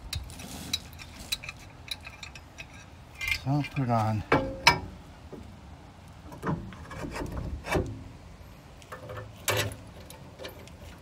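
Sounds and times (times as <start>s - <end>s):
metal scraping on metal: 0.0s - 4.8s, 6.4s - 7.9s
metal knocks and clunks: 4.2s - 5.5s, 6.3s - 8.1s.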